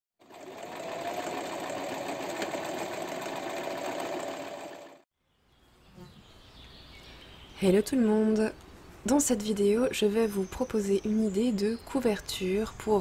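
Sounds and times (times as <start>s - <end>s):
sewing machine stitching: 0.2s - 5.0s.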